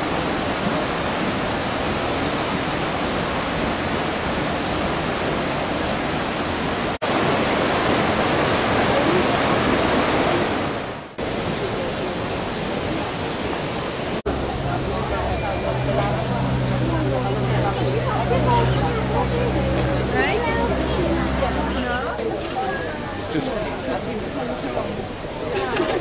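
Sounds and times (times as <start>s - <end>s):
steady rushing hiss: 11.2s - 26.0s.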